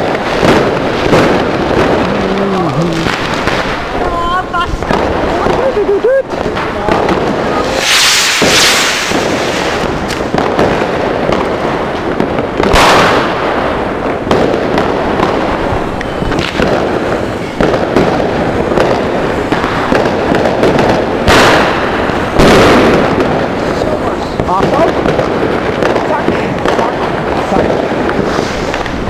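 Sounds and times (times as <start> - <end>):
firecrackers crackling and popping: 0.0 - 29.0
skyrockets launching with hiss: 7.4 - 10.3, 27.4 - 29.0.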